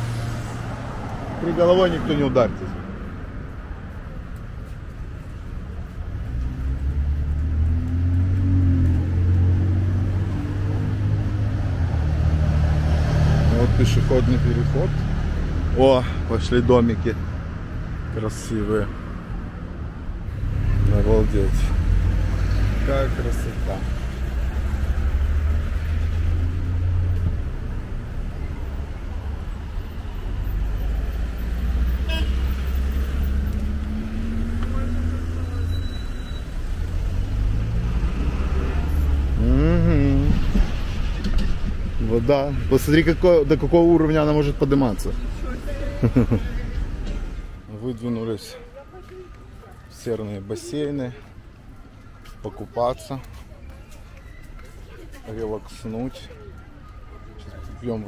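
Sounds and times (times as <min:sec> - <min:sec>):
vehicle engine humming: 0:00.0 - 0:50.4
cars driving past: 0:00.0 - 0:58.0
short car horn toot: 0:32.0 - 0:32.4.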